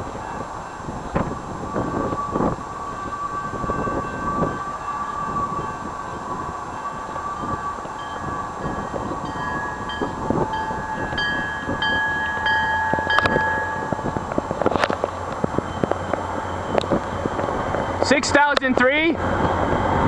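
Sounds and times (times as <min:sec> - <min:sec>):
train rumble: 0:00.0 - 0:20.0
wind on microphone: 0:00.0 - 0:20.0
locomotive horn: 0:00.2 - 0:15.0
train bell dings: 0:01.9 - 0:18.5.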